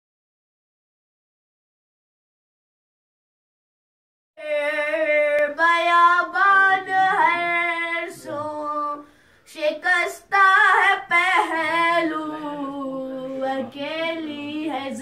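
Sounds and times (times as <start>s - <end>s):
boy chanting a lament: 4.4s - 15.0s.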